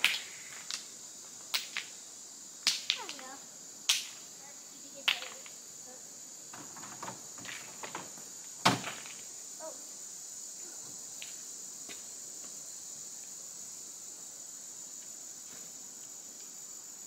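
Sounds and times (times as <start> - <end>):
high insect drone: 0.0 - 17.0.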